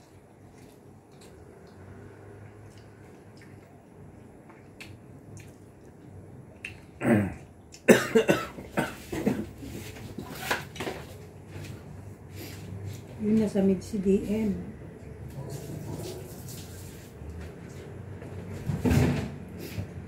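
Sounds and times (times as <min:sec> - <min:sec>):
person coughing: 0:07.0 - 0:09.5.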